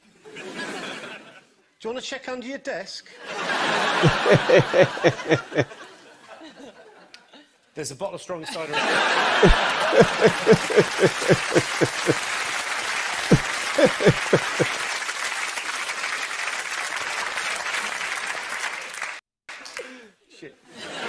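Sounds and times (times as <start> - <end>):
audience laughing and applauding: 3.3 - 5.9, 8.8 - 19.8
man laughing heartily: 3.7 - 5.8, 9.2 - 12.2, 13.3 - 14.8.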